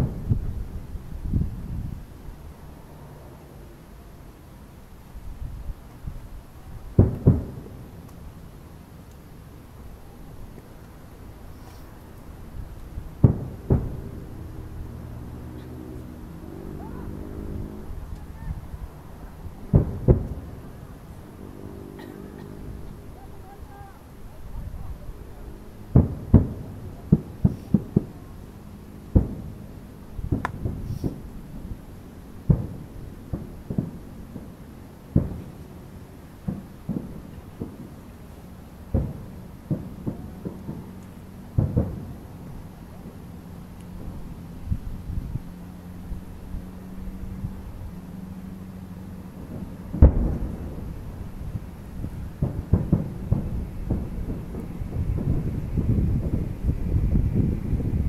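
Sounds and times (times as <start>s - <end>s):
firework booms with rolling echo: 0.0s - 2.0s, 6.8s - 8.1s, 12.4s - 21.4s, 25.8s - 44.4s, 49.3s - 58.0s.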